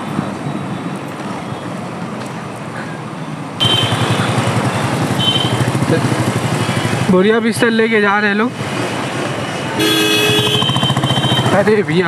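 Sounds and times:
wind and road noise: 0:00.0 - 0:12.0
motorcycle engine running: 0:03.6 - 0:07.4, 0:10.3 - 0:11.7.

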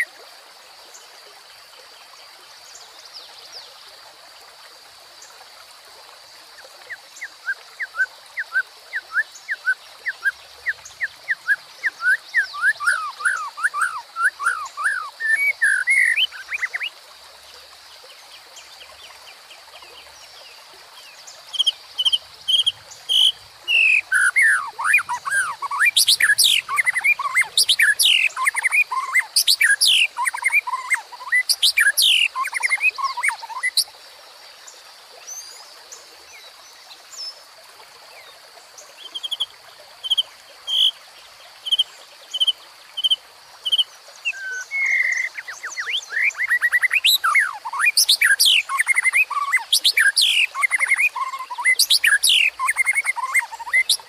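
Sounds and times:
stream rushing: 0:00.0 - 0:00.5, 0:04.2 - 0:19.8, 0:20.4 - 0:33.9, 0:37.2 - 0:54.0
bird singing: 0:06.9 - 0:16.9, 0:21.0 - 0:33.9, 0:41.6 - 0:54.0.

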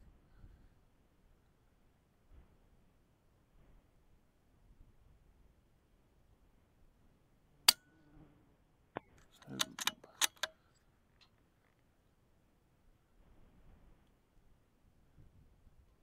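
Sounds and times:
rifle bolt clicking: 0:09.3 - 0:10.6.

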